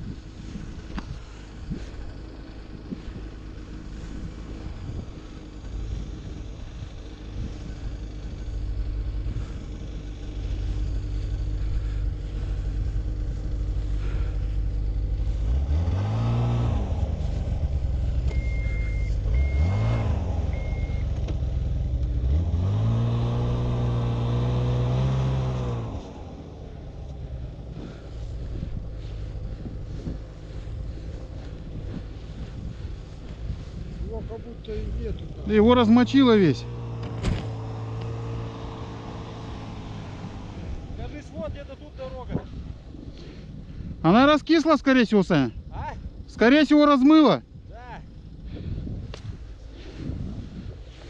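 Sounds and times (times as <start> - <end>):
snowmobile engine revving: 0.0 - 43.4
short high beeps: 18.3 - 21.1.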